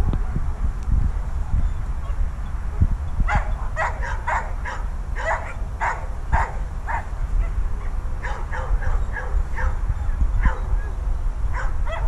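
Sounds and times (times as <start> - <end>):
dog barking and yelping: 3.3 - 10.9, 11.5 - 12.0.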